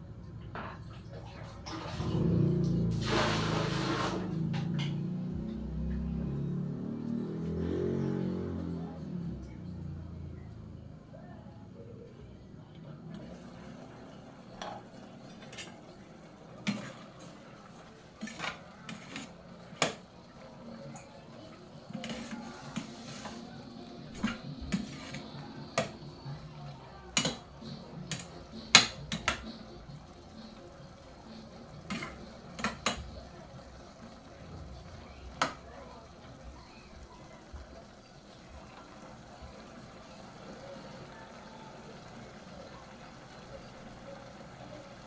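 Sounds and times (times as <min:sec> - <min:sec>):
metal spoon scraping a saucepan: 0:16.6 - 0:17.2, 0:18.2 - 0:20.0, 0:21.8 - 0:23.5, 0:24.1 - 0:26.0, 0:27.2 - 0:29.6, 0:31.8 - 0:33.0.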